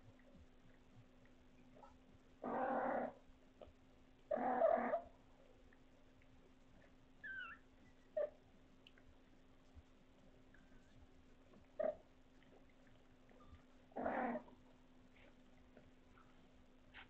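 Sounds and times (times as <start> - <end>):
cat growling: 2.4 - 3.2, 4.3 - 5.0, 14.0 - 14.5
faint high chirp: 7.2 - 8.3.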